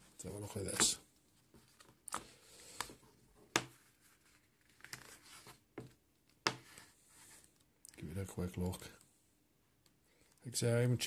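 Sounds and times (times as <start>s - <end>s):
paper rustling: 3.6s - 5.6s.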